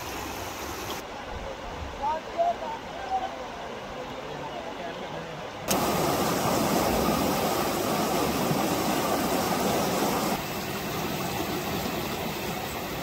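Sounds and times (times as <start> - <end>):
flood water rushing: 5.3 - 13.0.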